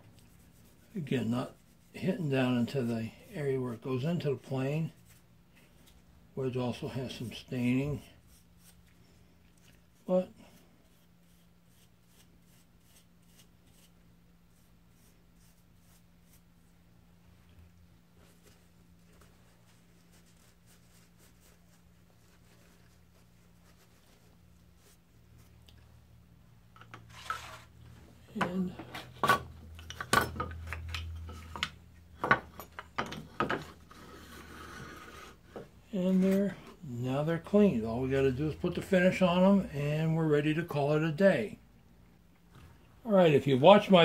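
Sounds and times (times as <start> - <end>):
low steady hum: 0.0 - 44.0
scrubbing strokes: 0.2 - 3.8.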